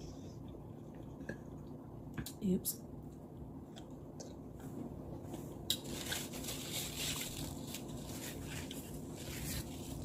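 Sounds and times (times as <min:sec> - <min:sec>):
soft chewing of food: 0:00.2 - 0:02.3, 0:03.0 - 0:06.3.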